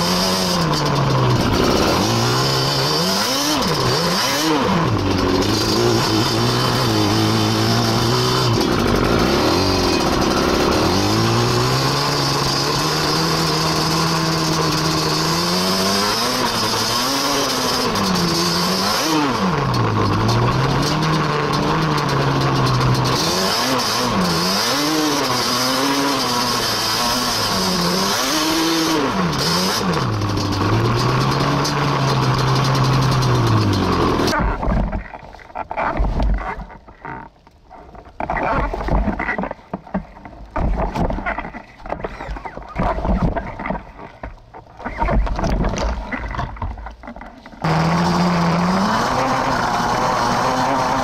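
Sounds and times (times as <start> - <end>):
two-stroke engine revving: 0.0 - 34.8, 38.2 - 51.0
thumps and knocks: 33.4 - 47.7.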